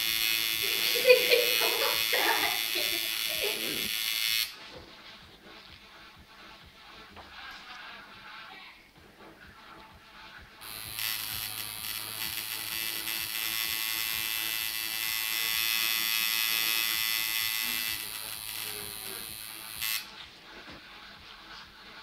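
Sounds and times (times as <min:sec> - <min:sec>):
tattoo machine buzzing: 0:00.0 - 0:04.6, 0:10.6 - 0:20.2.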